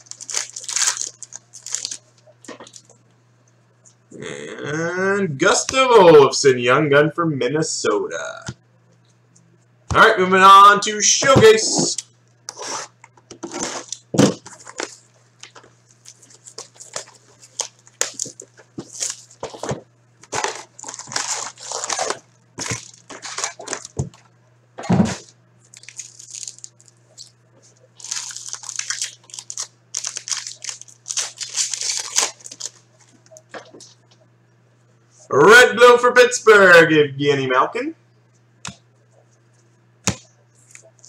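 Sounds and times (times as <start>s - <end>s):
plastic wrap and foil packs crinkling: 0.0s - 3.0s, 13.4s - 24.2s, 25.1s - 34.0s.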